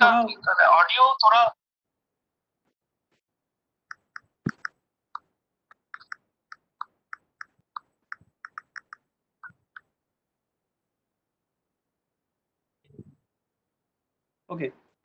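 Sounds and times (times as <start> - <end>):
computer keyboard typing: 3.9 - 4.8, 5.7 - 9.8.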